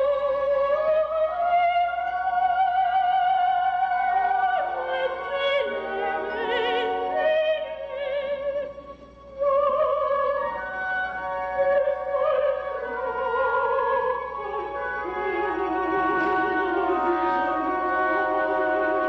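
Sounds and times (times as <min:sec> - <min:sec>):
soprano singing opera: 0:00.0 - 0:19.0
orchestra playing: 0:09.6 - 0:19.0.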